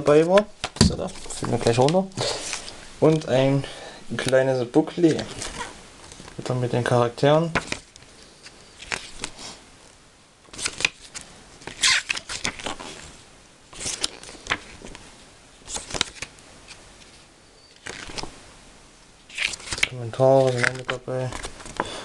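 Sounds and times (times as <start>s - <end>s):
booklet pages turning: 0.0s - 3.3s, 4.2s - 6.4s, 7.5s - 9.6s, 10.5s - 13.1s, 13.7s - 15.0s, 15.6s - 18.3s, 19.3s - 21.9s.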